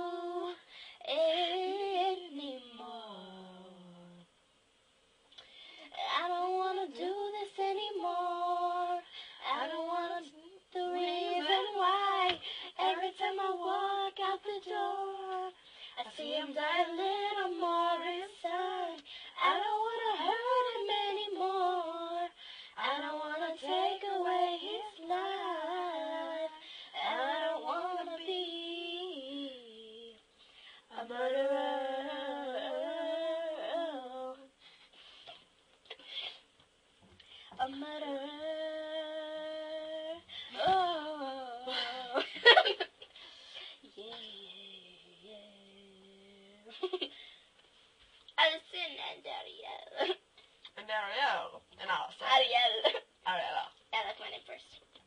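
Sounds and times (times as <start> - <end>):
girls singing unaccompanied: 0.0 - 3.8, 5.9 - 30.2, 30.9 - 34.6, 37.6 - 42.7.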